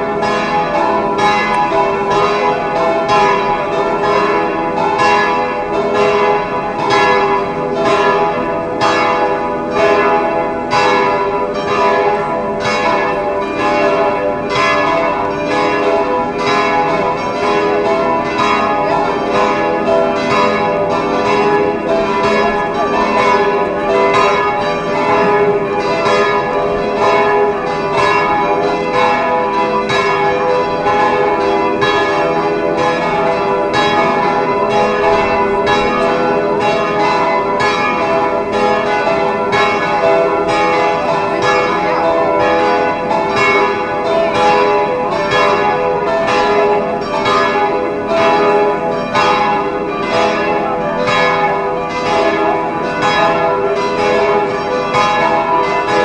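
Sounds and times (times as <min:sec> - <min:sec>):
church bells pealing: 0:00.0 - 0:56.0.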